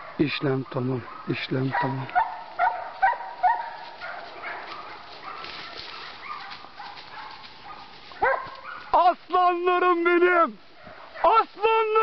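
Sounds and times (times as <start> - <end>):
dogs yelping: 0.0 - 9.0.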